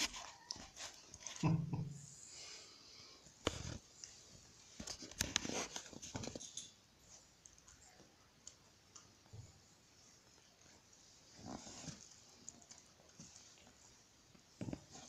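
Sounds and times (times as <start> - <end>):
rustling: 3.5 - 15.0.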